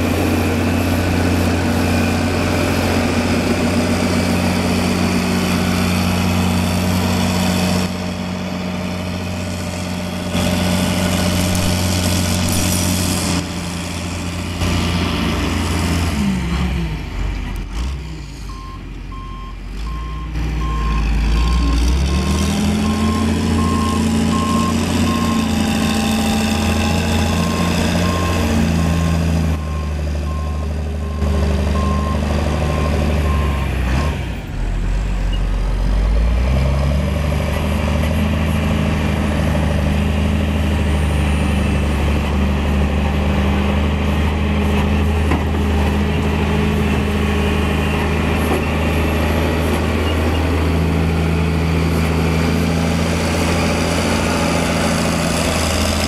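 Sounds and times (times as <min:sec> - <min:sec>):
diesel engine running: 0:00.0 - 0:56.0
reversing alarm beeping: 0:18.5 - 0:21.7, 0:22.8 - 0:28.6, 0:29.6 - 0:34.2.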